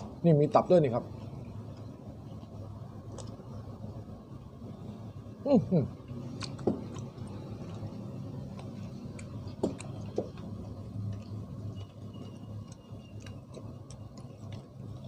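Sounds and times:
steady low hum: 0.0s - 15.0s
person chewing: 1.2s - 3.5s, 6.0s - 15.0s.

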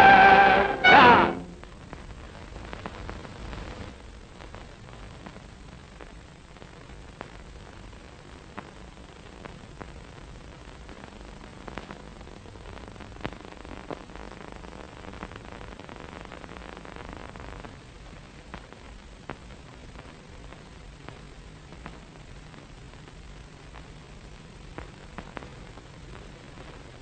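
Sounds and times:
film soundtrack surface noise: 0.0s - 27.0s.

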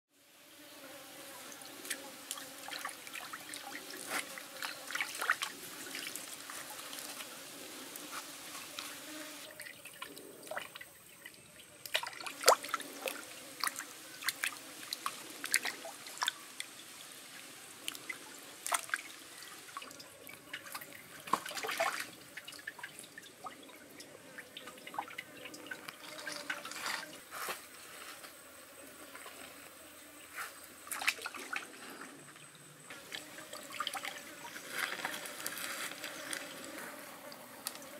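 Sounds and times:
stream trickling: 1.5s - 27.3s, 30.8s - 37.9s
water splashing and dripping: 1.8s - 7.2s, 9.6s - 16.8s, 17.8s - 27.1s, 30.8s - 31.8s, 33.0s - 35.2s.

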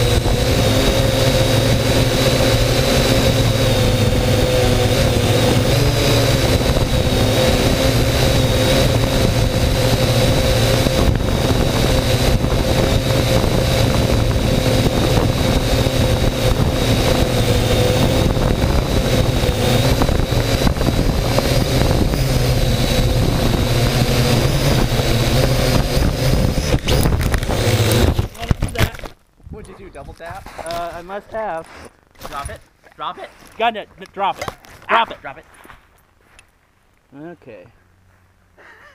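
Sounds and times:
drone motors buzzing: 0.0s - 29.1s.

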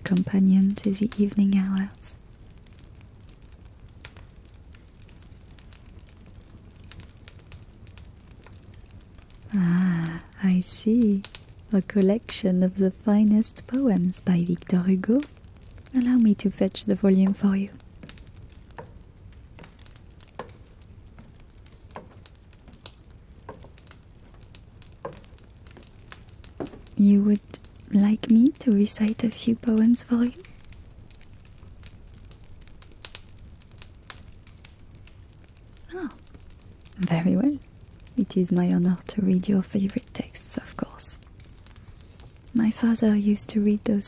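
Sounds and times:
low steady hum: 0.0s - 44.0s
soft crackles: 0.0s - 44.0s
faint clicks and soft taps: 17.3s - 28.4s.

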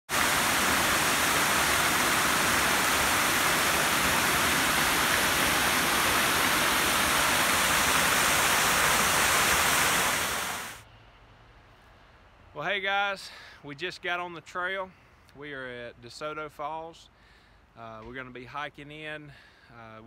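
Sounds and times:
waterfall rushing: 0.0s - 10.8s.

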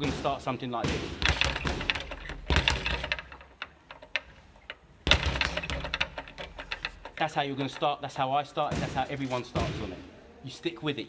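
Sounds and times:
speed bag being punched: 0.0s - 3.4s, 5.1s - 7.3s.

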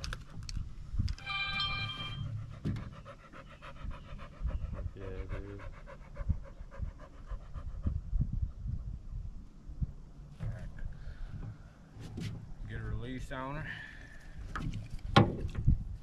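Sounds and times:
short high whine: 1.2s - 2.4s
large dog panting: 2.2s - 9.1s.

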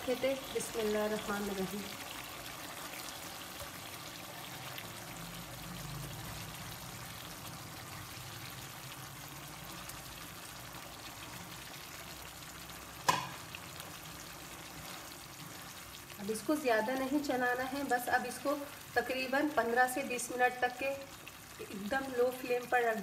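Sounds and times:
gravy simmering and sizzling: 0.0s - 23.0s
sharp knock: 13.1s - 13.3s.

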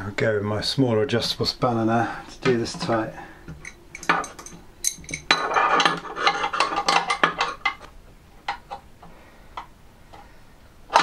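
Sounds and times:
spanner clinking on metal nut: 3.6s - 7.8s.

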